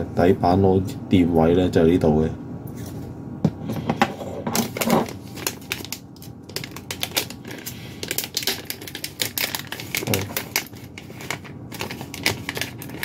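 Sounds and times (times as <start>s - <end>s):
plastic packaging crinkling: 4.6s - 13.0s.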